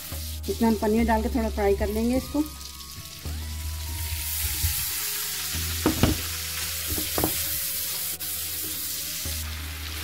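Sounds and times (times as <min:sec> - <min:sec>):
cheese sizzling in butter: 0:00.0 - 0:10.0
soft knocks: 0:05.8 - 0:06.2, 0:06.9 - 0:07.4.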